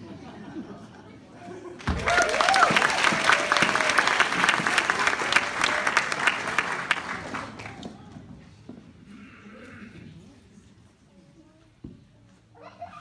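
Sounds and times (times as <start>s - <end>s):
audience clapping: 1.8s - 8.1s.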